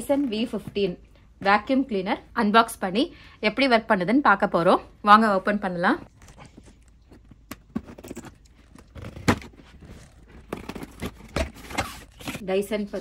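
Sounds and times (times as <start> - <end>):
scissors cutting cardboard: 7.6 - 12.4.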